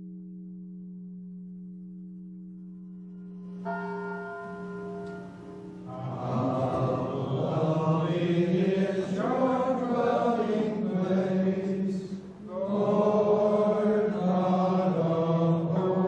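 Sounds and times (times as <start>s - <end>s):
monks chanting in unison: 5.9s - 16.0s.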